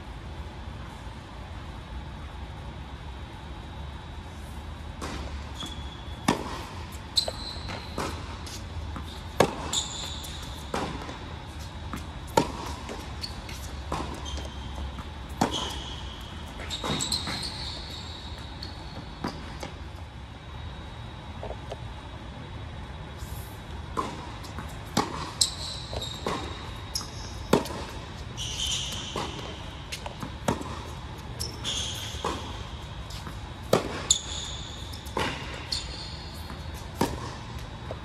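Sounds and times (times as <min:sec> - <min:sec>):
steady low hum: 0:00.0 - 0:38.0
shoes squeaking on court: 0:04.0 - 0:22.0, 0:22.6 - 0:38.0
tennis ball bouncing: 0:05.0 - 0:17.6, 0:23.8 - 0:35.7, 0:36.4 - 0:38.0
racket striking tennis ball: 0:06.2 - 0:17.4, 0:23.9 - 0:25.5, 0:26.1 - 0:28.0, 0:28.8 - 0:34.3, 0:36.4 - 0:38.0.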